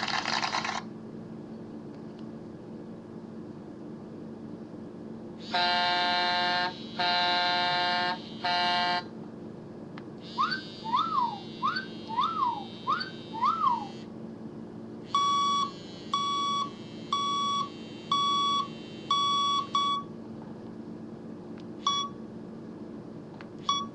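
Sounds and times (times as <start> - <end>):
air horn blasts: 5.4 - 9.1
steady beeps: 10.3 - 14.0, 15.2 - 20.1
whooping siren chirps: 10.3 - 14.0.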